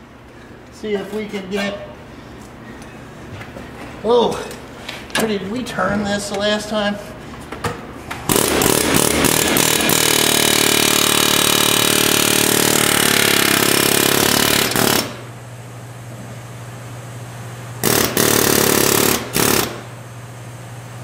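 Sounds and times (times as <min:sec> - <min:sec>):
pneumatic impact wrench: 0:08.3 - 0:15.3, 0:17.8 - 0:19.9.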